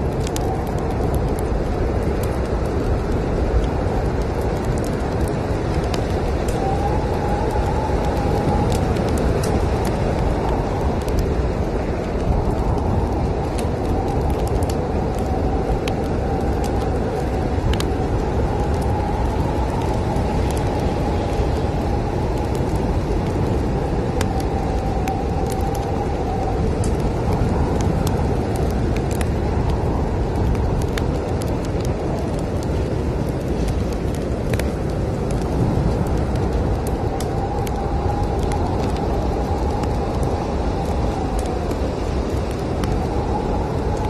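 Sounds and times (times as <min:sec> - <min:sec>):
whistling wind howl: 0:00.0 - 0:44.0
wind low rumble: 0:00.0 - 0:44.0
wood fire crackling: 0:00.0 - 0:44.0.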